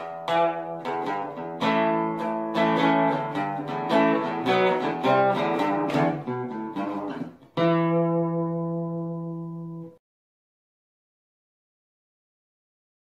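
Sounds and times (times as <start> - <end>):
guitar strumming chords: 0.0 - 10.0.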